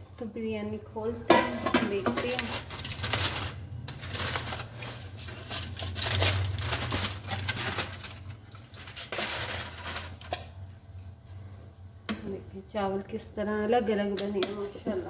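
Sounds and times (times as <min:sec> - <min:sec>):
aluminium foil crinkling: 0:02.0 - 0:10.4.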